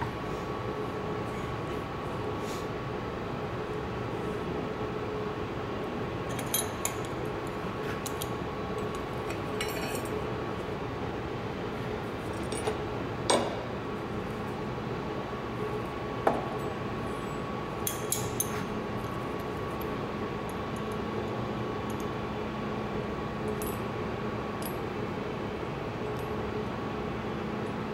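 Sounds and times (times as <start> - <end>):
workshop hum: 0.0 - 27.9
metal tools clinking on brick: 9.3 - 10.2.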